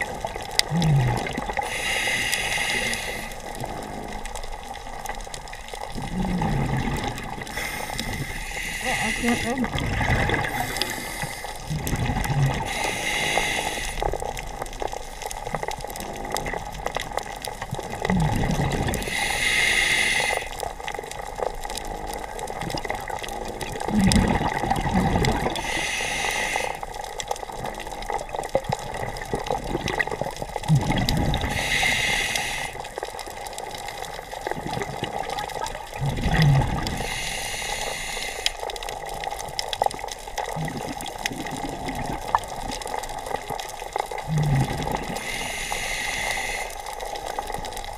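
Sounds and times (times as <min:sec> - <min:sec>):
exhaled bubbles bursting: 0:00.0 - 0:01.9, 0:02.6 - 0:19.3, 0:20.4 - 0:25.9, 0:26.8 - 0:37.2, 0:38.6 - 0:45.6
scuba regulator breathing: 0:00.6 - 0:05.0, 0:06.0 - 0:14.4, 0:18.2 - 0:20.8, 0:25.2 - 0:27.5, 0:30.6 - 0:39.0, 0:43.9 - 0:47.9.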